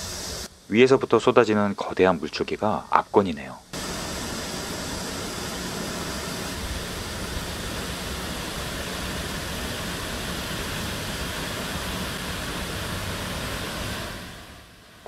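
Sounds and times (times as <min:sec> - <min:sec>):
waterfall rushing: 0:03.8 - 0:15.0.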